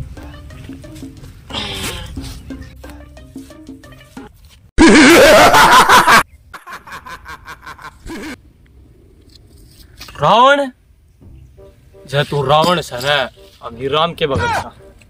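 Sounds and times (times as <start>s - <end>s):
laughing sound effect: 4.8s - 8.4s.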